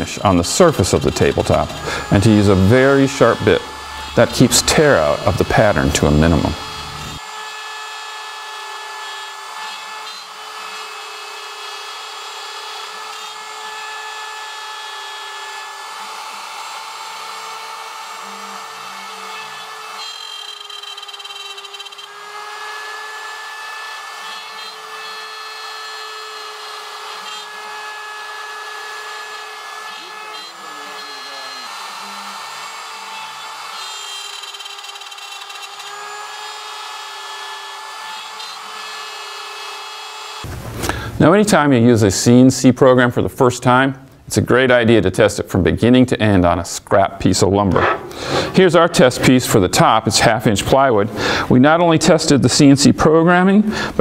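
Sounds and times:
router bit cutting wood: 0.0s - 40.5s, 47.2s - 54.0s
router motor whine: 0.4s - 40.5s.

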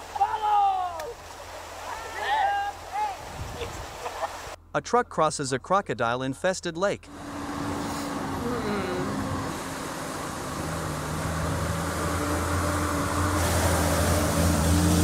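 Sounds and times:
rushing water: 0.0s - 4.6s, 7.1s - 15.0s
truck diesel engine running: 7.0s - 15.0s.

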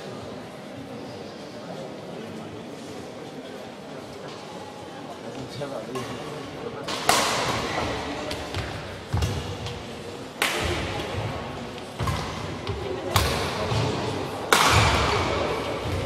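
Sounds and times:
racket hitting shuttlecock: 6.8s - 16.0s.

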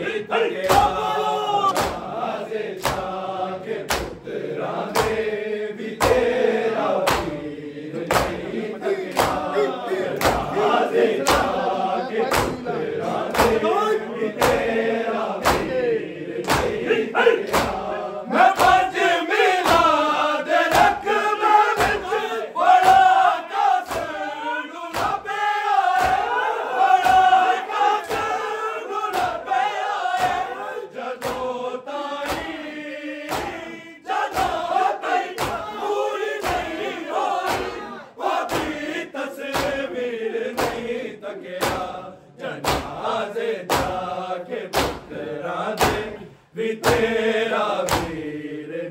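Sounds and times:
men chanting in unison: 0.0s - 48.9s
hands slapping chests: 0.6s - 3.2s, 3.8s - 4.3s, 4.9s - 5.3s, 6.0s - 11.7s, 12.3s - 14.8s, 15.4s - 15.8s, 16.4s - 17.9s, 18.5s - 18.9s, 19.6s - 20.0s, 20.7s - 21.1s, 21.7s - 24.2s, 24.9s - 28.4s, 29.1s - 29.4s, 30.1s - 30.6s, 31.2s - 31.6s, 32.2s - 32.6s, 33.2s - 35.8s, 36.4s - 43.0s, 43.7s - 44.0s, 44.7s - 45.1s, 45.8s - 46.2s, 46.8s - 47.1s, 47.8s - 48.3s.

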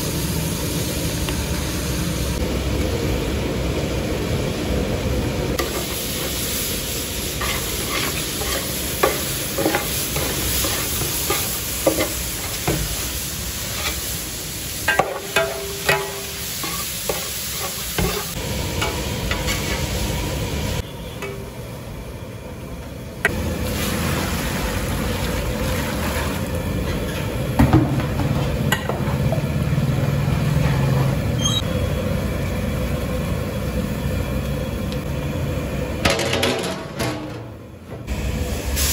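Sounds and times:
beetroot sizzling in a pot: 5.6s - 20.9s, 23.3s - 26.6s.

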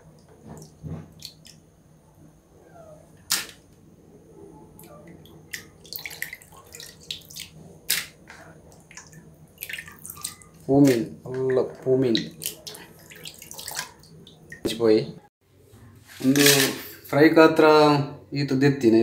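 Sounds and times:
water splashing and dripping: 0.1s - 1.6s, 4.8s - 14.8s.

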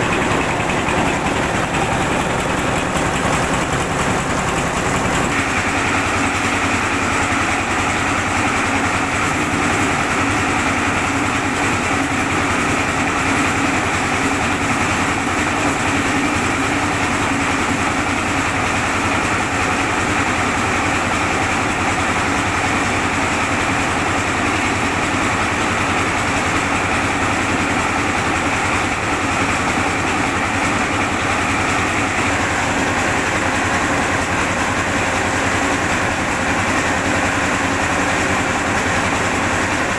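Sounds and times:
rice mill machinery whirring: 0.0s - 39.9s.

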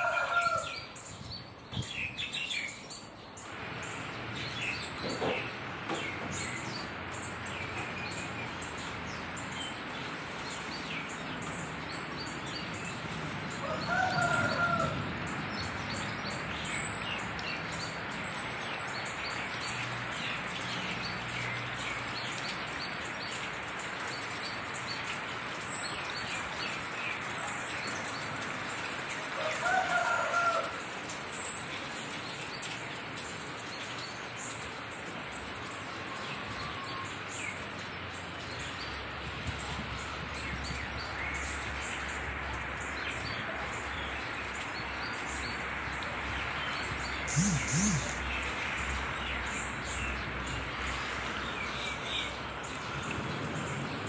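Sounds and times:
rain hissing: 3.4s - 54.0s
small birds chirping: 36.3s - 54.0s
loud animal call: 47.3s - 48.2s.

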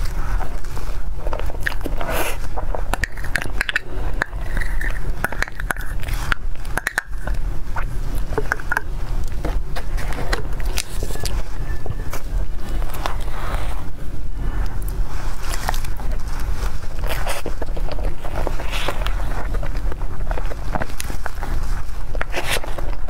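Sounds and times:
wet mouth smacks and chewing: 1.3s - 11.4s.

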